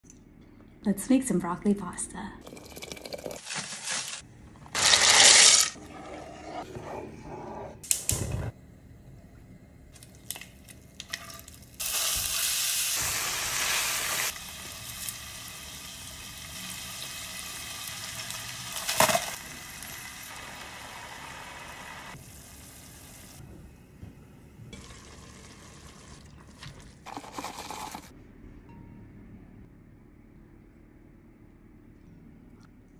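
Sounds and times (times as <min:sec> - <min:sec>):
food sizzling in a frying pan: 0:11.8 - 0:23.4.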